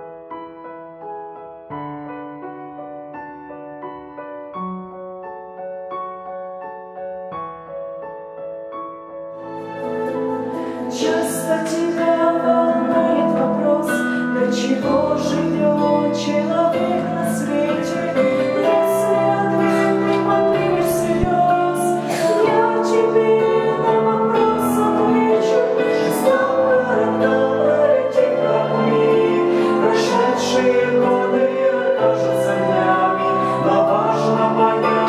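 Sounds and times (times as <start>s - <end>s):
vocal group singing in harmony: 9.6s - 35.0s.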